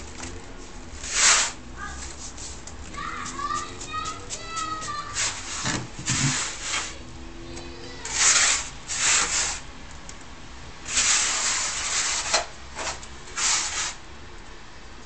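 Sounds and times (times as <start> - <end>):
hands rubbing semolina in wooden bowl: 1.0 - 7.0.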